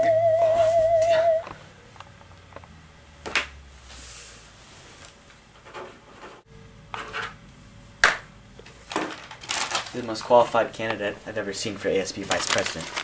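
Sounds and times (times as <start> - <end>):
wavering electronic tone: 0.0 - 1.5.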